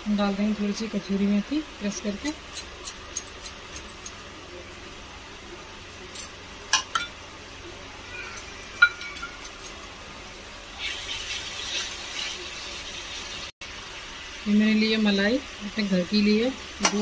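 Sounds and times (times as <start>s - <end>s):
kitchen utensils clinking: 8.6s - 9.8s.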